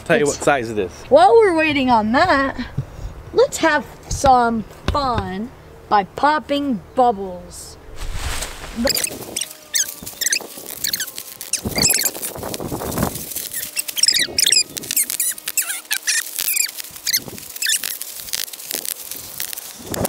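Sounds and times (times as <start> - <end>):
bubble wrap popping: 8.0 - 20.0
plastic squeaking: 8.8 - 20.0.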